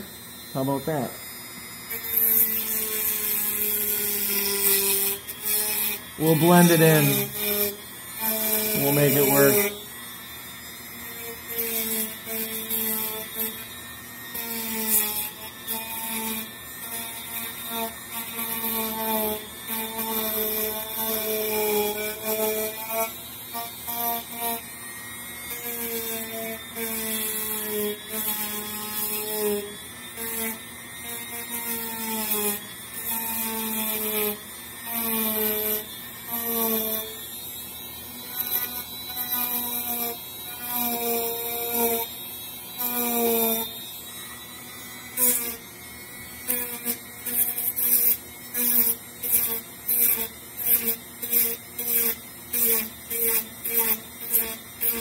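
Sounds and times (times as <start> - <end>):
rotary tool motor hum: 0.0 - 55.0
foam rasping: 2.0 - 9.8.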